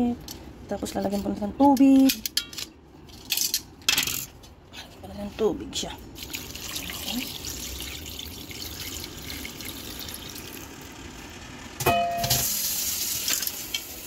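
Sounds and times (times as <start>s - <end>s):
water pouring and splashing: 6.2s - 10.6s.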